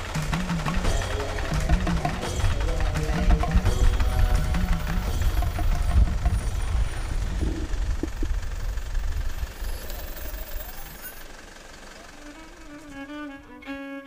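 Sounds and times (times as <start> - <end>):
wind buffeting microphone: 4.0 - 9.6.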